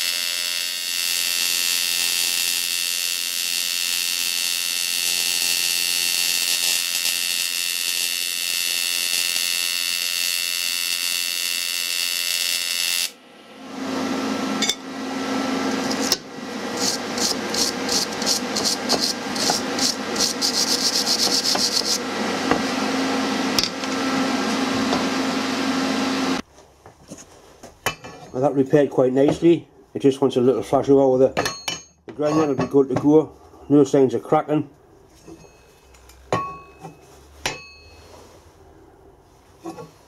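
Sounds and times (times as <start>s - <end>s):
welding arc hiss and whine: 0.0s - 26.4s.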